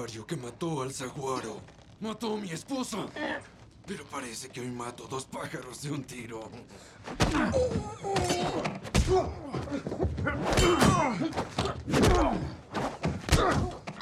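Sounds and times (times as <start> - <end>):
men grunting: 7.2 - 12.6.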